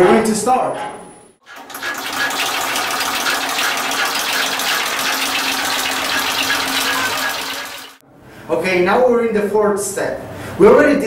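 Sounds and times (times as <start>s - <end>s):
machine hum: 1.4s - 8.0s
rapid even clatter: 1.4s - 8.0s.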